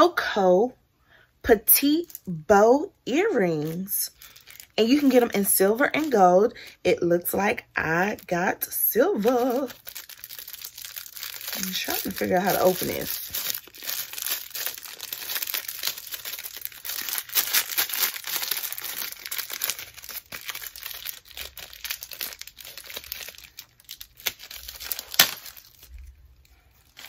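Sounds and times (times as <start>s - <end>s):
packaging crackling and rustling: 3.5s - 6.3s, 8.6s - 27.0s.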